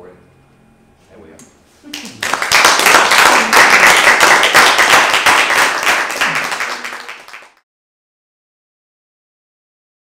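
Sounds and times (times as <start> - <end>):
audience applauding: 1.9 - 7.6.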